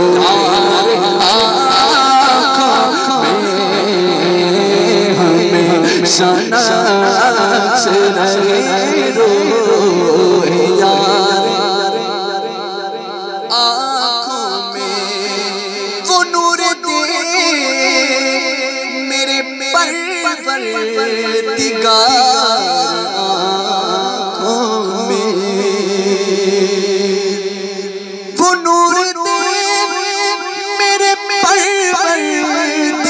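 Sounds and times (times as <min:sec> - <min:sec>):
man singing through pa system: 0:00.0 - 0:33.0.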